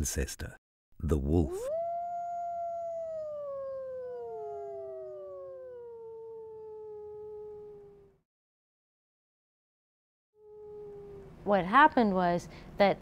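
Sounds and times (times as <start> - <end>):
wolf howling: 1.4 - 8.2, 10.4 - 11.4.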